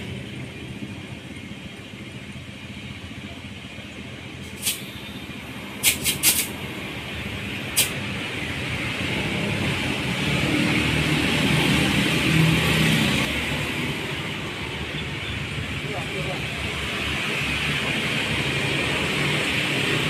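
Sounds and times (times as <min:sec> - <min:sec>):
road traffic: 0:00.0 - 0:20.0.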